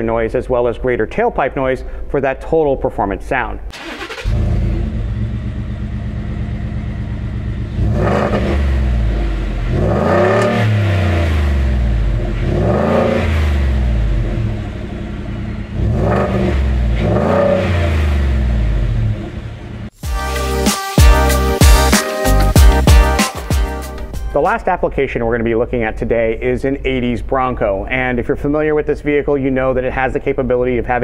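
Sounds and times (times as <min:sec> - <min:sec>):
truck exhaust idling and revving: 0:04.2 - 0:20.0.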